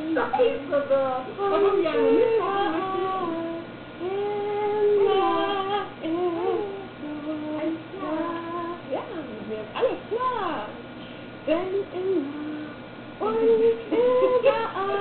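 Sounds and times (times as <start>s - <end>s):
woman singing: 0.0s - 10.7s, 11.5s - 15.0s.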